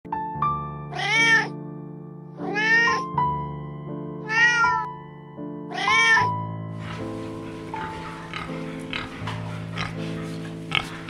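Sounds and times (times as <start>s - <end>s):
background music: 0.1s - 11.0s
kitten meowing: 0.9s - 1.5s, 2.4s - 3.0s, 4.3s - 4.9s, 5.7s - 6.3s.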